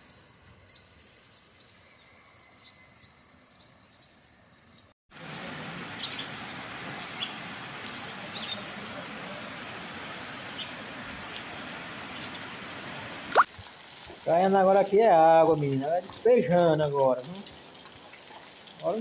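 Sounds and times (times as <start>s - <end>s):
heavy rain falling: 5.2s - 19.0s.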